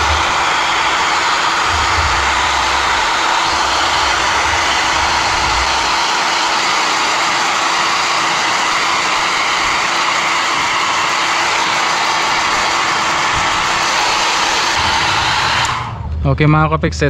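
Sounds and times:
low rumble: 0:00.0 - 0:06.2, 0:14.8 - 0:17.0
hair dryer blowing: 0:00.0 - 0:16.2.

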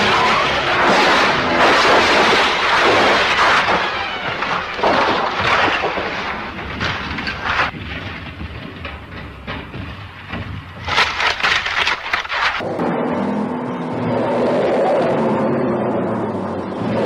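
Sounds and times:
car crashing down hillside: 0:00.0 - 0:12.6.

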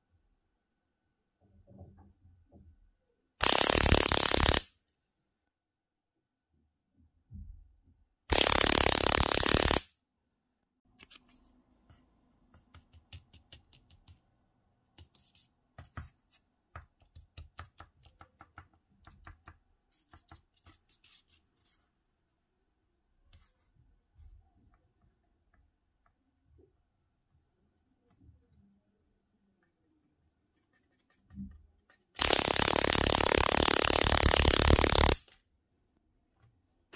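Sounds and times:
electric mouse trap noise burst: 0:03.4 - 0:04.7, 0:08.3 - 0:09.9, 0:32.2 - 0:35.3.

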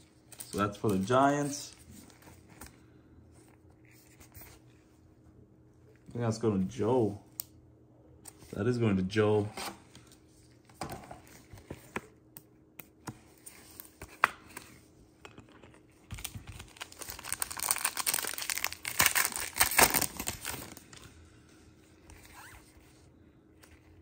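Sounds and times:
wrapper crinkling as torn open: 0:16.1 - 0:21.0.

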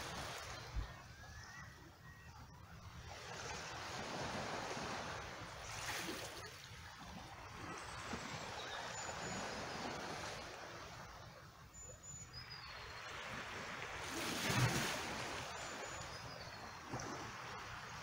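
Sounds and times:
waves lapping over rocks: 0:00.0 - 0:00.8, 0:03.4 - 0:08.4, 0:13.4 - 0:18.0.

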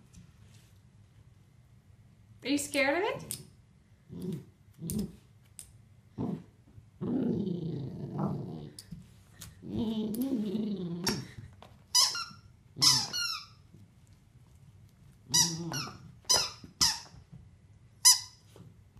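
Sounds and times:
dog growling: 0:04.1 - 0:05.2, 0:06.2 - 0:08.8, 0:09.6 - 0:11.4, 0:15.3 - 0:16.0
squeaky toy squeaking: 0:12.0 - 0:13.6.

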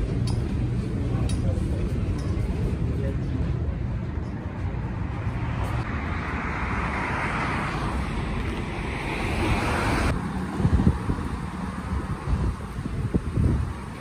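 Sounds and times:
street traffic noise: 0:00.0 - 0:14.0
wind buffeting microphone: 0:09.4 - 0:14.0.

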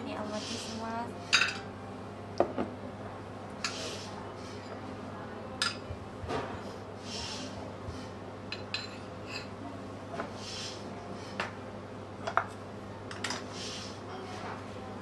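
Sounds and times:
steady low hum: 0:00.0 - 0:15.0
ceramic dishes clinking: 0:01.3 - 0:01.7, 0:05.6 - 0:05.8, 0:08.5 - 0:09.5.

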